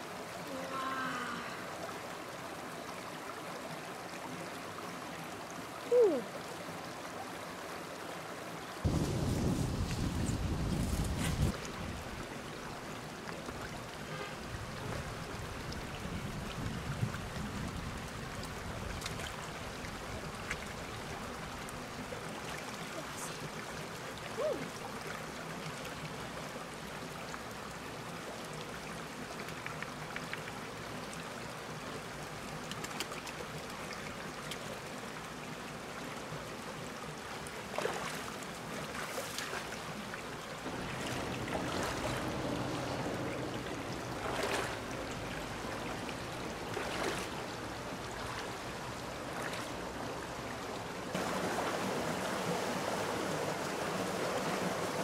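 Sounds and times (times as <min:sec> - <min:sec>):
stream running over rocks: 0:00.0 - 0:55.0
splashes of wading: 0:37.4 - 0:55.0.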